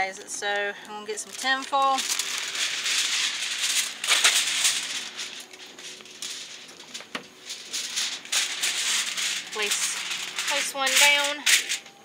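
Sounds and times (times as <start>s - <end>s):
aluminium foil crinkling: 0.0s - 12.0s.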